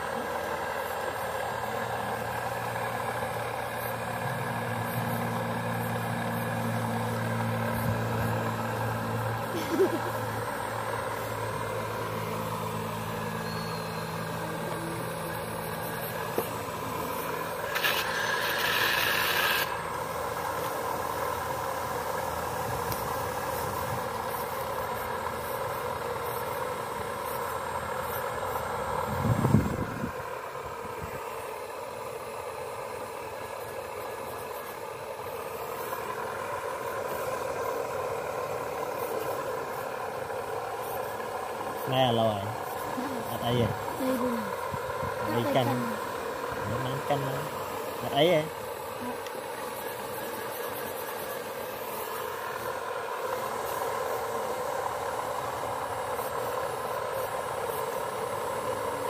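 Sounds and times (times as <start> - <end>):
model excavator motor whine: 0.0 - 59.0
hiss burst: 15.3 - 21.8.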